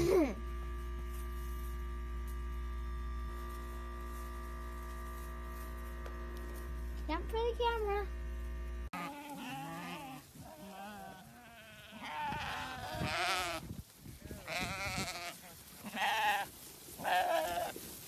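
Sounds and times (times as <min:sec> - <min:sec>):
sheep bleating: 0:08.9 - 0:13.6, 0:14.3 - 0:17.8.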